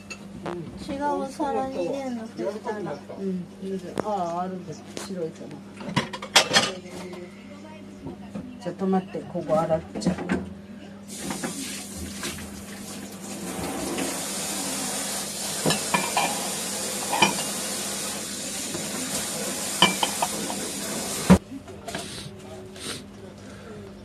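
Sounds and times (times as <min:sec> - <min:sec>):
tap water running into sink: 0:11.1 - 0:21.4
ceramic plates clinking: 0:15.7 - 0:16.4, 0:17.1 - 0:17.6, 0:19.8 - 0:20.6.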